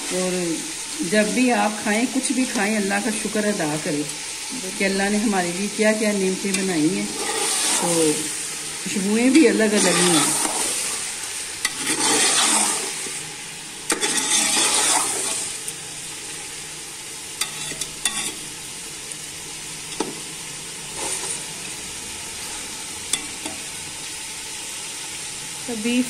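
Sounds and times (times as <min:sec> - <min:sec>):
chicken sizzling in oil: 0:00.0 - 0:26.0
metal spoon scraping: 0:06.4 - 0:08.1, 0:09.6 - 0:10.8, 0:11.6 - 0:13.0, 0:13.9 - 0:15.5, 0:17.4 - 0:18.4.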